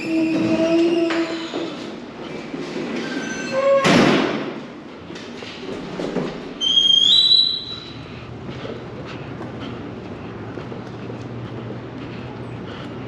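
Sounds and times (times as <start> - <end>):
metal door hinge squealing: 3.0 - 4.1, 6.6 - 8.0.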